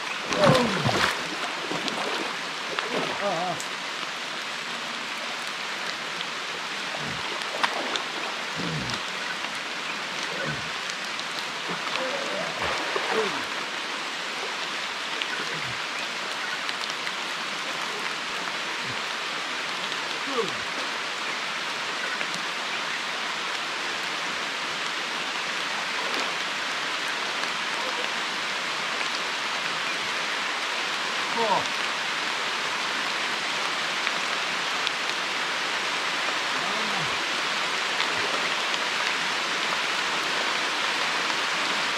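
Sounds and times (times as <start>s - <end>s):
raindrop hits: 0.0s - 2.2s
heavy rain: 0.0s - 41.9s.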